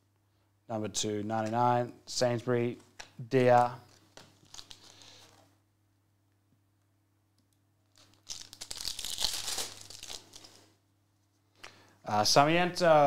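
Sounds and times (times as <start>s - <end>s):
foil wrapper tearing and crinkling: 4.4s - 5.2s, 7.9s - 10.7s.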